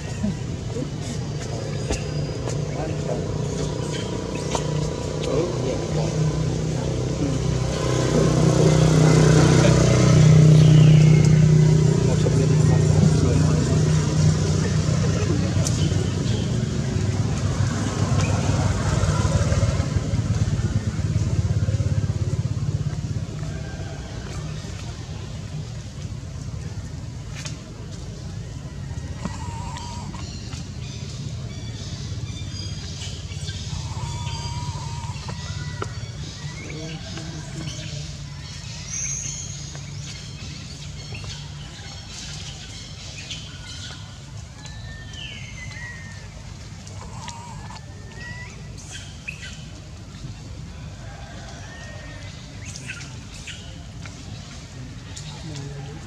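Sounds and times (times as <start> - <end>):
birds chirping: 0.0 - 27.2, 27.8 - 56.0.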